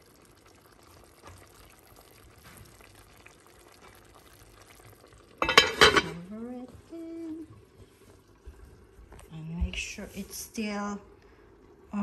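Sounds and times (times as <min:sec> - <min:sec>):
liquid simmering in a pot: 0:00.0 - 0:12.0
heavy pot lid clattering: 0:05.4 - 0:06.2.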